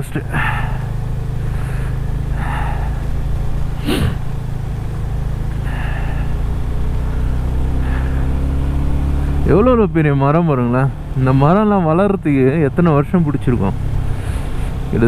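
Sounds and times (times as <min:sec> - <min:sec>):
motorcycle engine running: 0:00.0 - 0:15.0
wind: 0:00.0 - 0:15.0
tyre hiss on wet road: 0:14.1 - 0:14.8.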